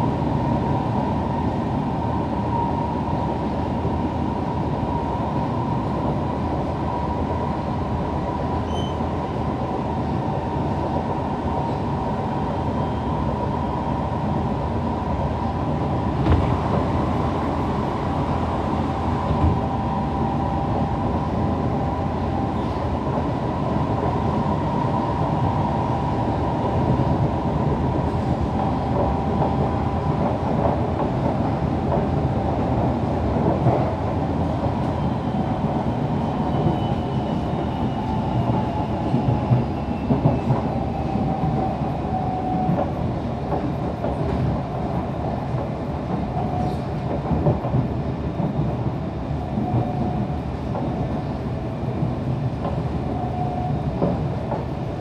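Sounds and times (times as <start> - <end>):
train rumbling with whine: 0.0 - 55.0.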